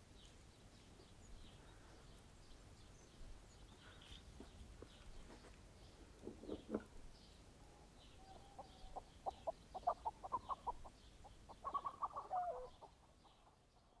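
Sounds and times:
chickens clucking: 6.2 - 7.0, 8.2 - 13.6.

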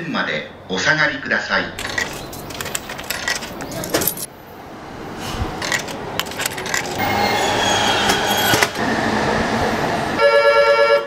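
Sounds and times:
train noise: 0.5 - 11.0
coins and can clattering in vending machine: 1.8 - 4.3, 5.6 - 7.0.

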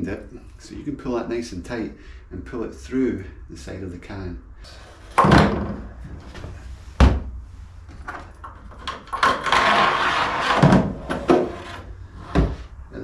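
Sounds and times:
scraping and rattling in tank: 8.0 - 12.5.

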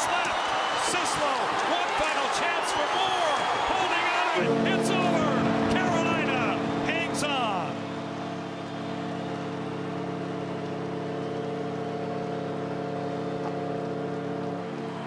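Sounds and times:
crowd noise: 0.0 - 15.0
arena horn chord: 4.4 - 15.0.

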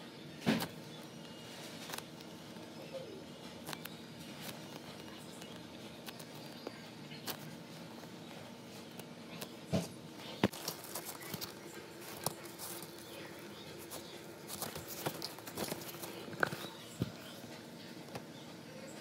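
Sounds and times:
faint steady hum: 0.0 - 19.0
hands squishing foam toy: 0.4 - 17.4
bag rustling: 10.4 - 17.3.

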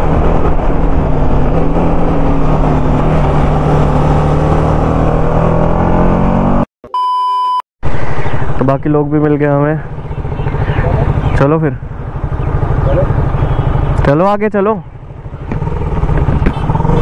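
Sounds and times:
motorcycle engine cruising: 0.0 - 6.7, 7.9 - 17.0
short electronic beep: 6.9 - 7.6.

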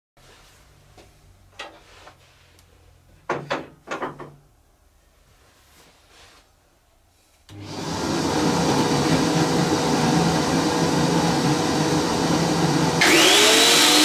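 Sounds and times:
sharp knocks and clunks: 3.3 - 4.4.

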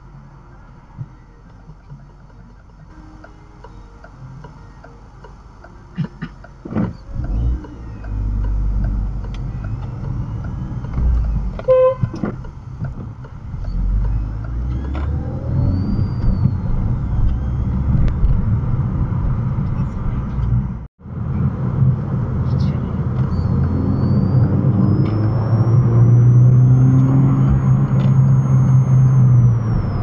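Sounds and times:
car engine and road noise: 0.0 - 30.0
car horn toot: 11.6 - 12.4.

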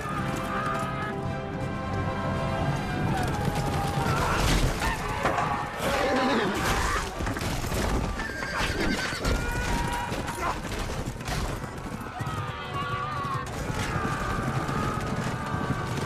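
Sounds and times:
music: 0.0 - 5.6, 13.2 - 16.0
pounding hooves: 0.0 - 16.0
horses whinnying: 2.8 - 16.0.

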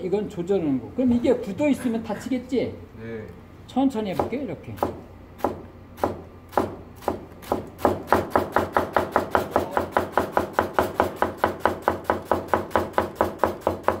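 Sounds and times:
knife chopping cabbage on board: 4.1 - 14.0.

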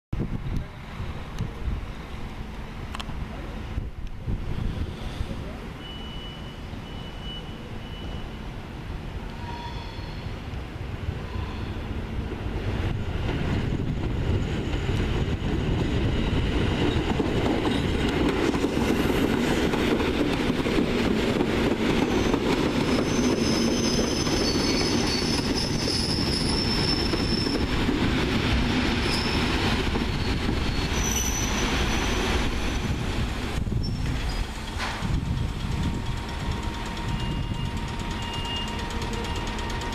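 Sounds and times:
high brake squeal: 4.6 - 8.6, 9.3 - 10.4, 11.2 - 11.9, 22.0 - 27.7, 29.0 - 33.0, 33.7 - 34.5, 36.7 - 39.9
electric train running: 34.5 - 39.9.

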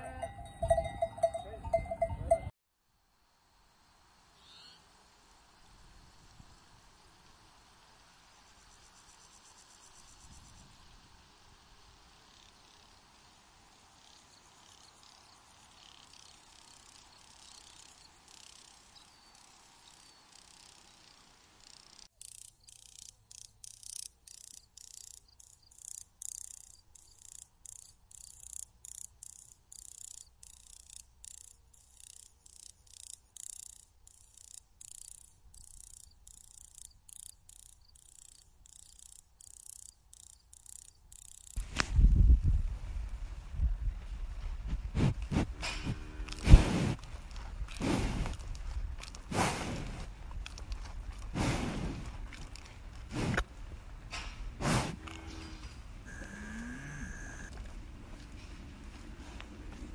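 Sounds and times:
faint hiss: 2.8 - 22.1.

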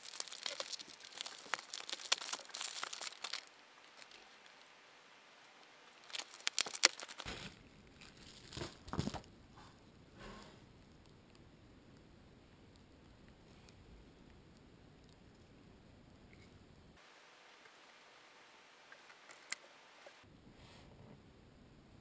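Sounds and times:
packaging crinkling and tearing: 0.0 - 4.7, 5.9 - 9.3
plastic bag crinkling: 0.0 - 4.7, 5.9 - 9.3.

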